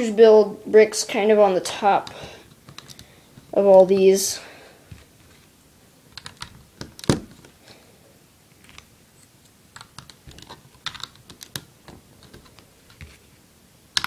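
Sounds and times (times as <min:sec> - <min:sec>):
plastic bricks clicking: 0:02.0 - 0:03.1, 0:06.1 - 0:07.2, 0:09.7 - 0:13.1.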